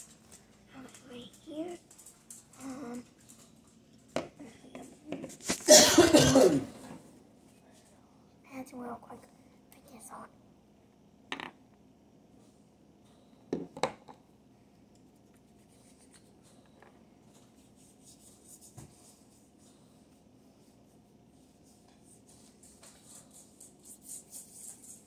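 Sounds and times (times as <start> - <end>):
plastic bottle knocking on wooden table: 11.3 - 11.5.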